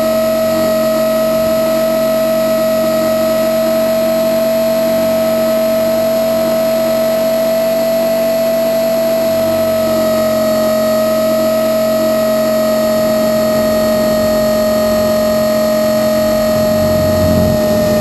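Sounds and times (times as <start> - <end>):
model helicopter motor whine: 9.0 - 18.0.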